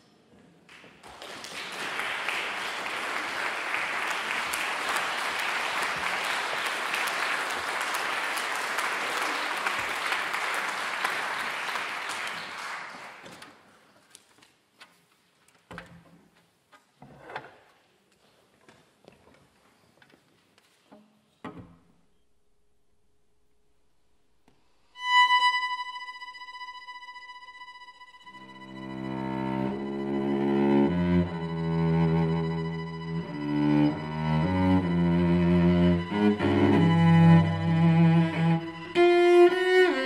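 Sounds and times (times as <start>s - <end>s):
audience applauding: 0.7s - 13.4s.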